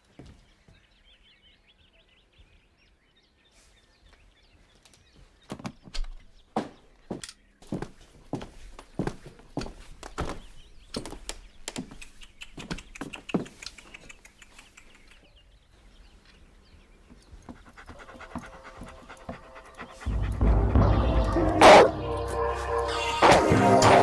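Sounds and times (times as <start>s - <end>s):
dog panting: 17.2s - 21.9s.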